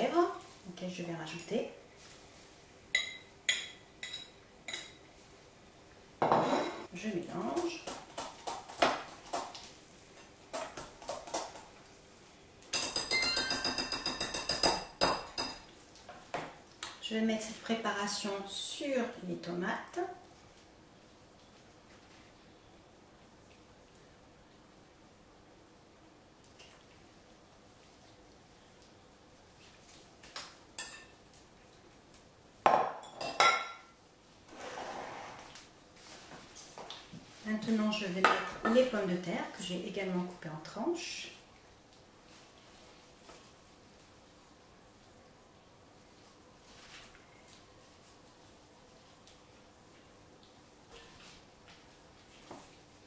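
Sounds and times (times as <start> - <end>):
glass dish scraping on table: 6.2 - 6.9, 34.5 - 35.5
whisk clinking against glass bowl: 12.7 - 15.6.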